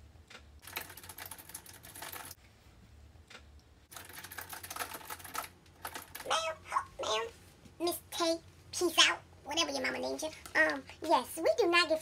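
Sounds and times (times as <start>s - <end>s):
rapid typing on keyboard: 0.6s - 2.4s, 3.9s - 6.5s.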